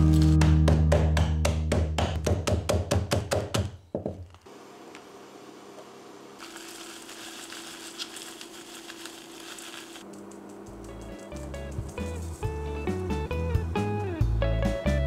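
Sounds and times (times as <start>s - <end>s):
background music: 0.0s - 2.2s, 10.9s - 15.0s.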